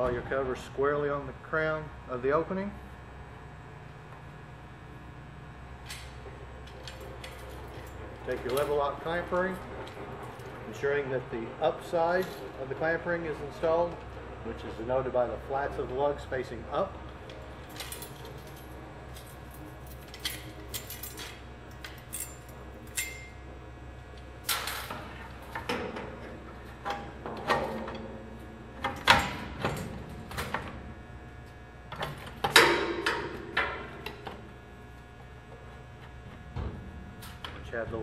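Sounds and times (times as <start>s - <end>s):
metal clamp ring clinking: 19.2s - 23.4s.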